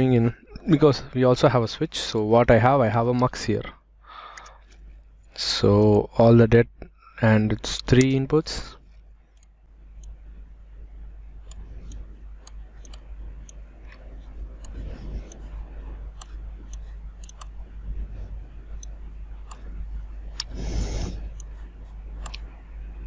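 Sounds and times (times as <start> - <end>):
steady low hum: 0.0 - 23.0
computer mouse clicking: 11.4 - 15.6, 16.2 - 17.6, 18.8 - 22.5.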